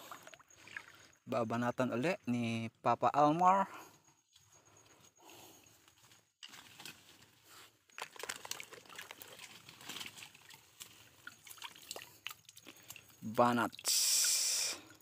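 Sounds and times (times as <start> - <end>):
shallow water splashing: 0.0 - 1.2, 8.0 - 15.0.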